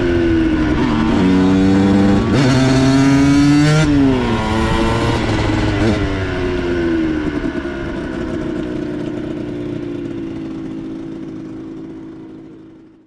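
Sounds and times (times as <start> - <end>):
two-stroke engine idling: 6.3 - 13.0.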